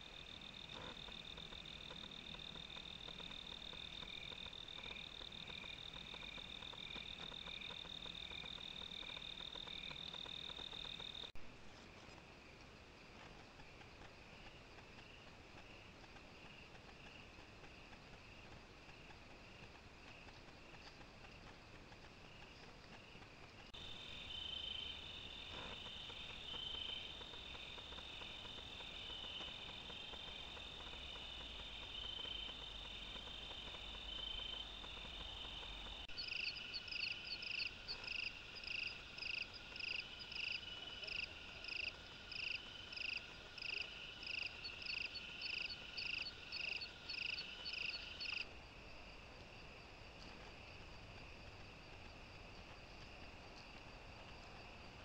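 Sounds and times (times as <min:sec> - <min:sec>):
insects trilling: 0:00.0 - 0:11.4, 0:22.2 - 0:49.8
rhythmic insect chirping: 0:00.0 - 0:11.4, 0:22.3 - 0:48.5.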